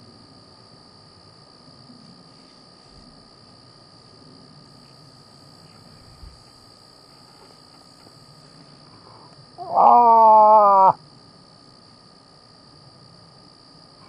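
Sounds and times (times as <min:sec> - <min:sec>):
faint insect trilling: 0:00.0 - 0:14.0
nasal moaning moose call: 0:09.6 - 0:11.0.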